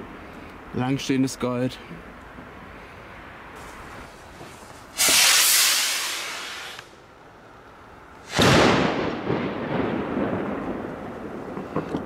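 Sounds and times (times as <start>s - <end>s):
firework rocket hissing: 3.6s - 7.0s, 8.2s - 8.9s
firework bang: 5.0s - 6.9s, 8.2s - 12.0s.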